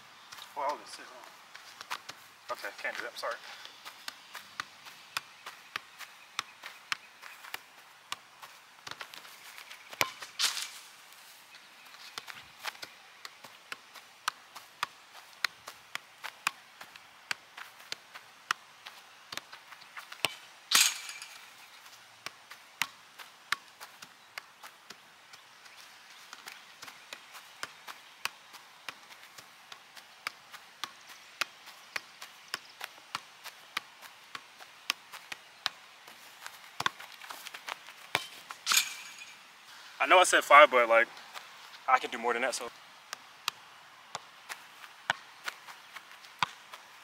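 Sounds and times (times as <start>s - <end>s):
soccer ball taps on feet: 0.3s - 10.4s, 11.8s - 20.4s, 21.8s - 38.6s, 43.1s - 47.0s.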